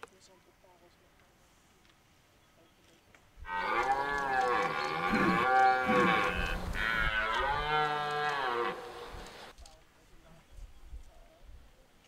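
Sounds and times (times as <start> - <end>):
deer stag roaring: 3.5 - 9.2.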